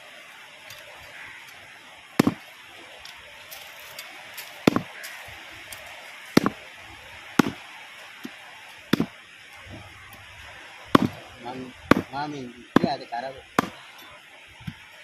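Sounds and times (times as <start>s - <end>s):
background hiss: 0.0s - 15.0s
knife chopping on wooden board: 2.2s - 2.4s, 4.7s - 4.9s, 6.4s - 6.6s.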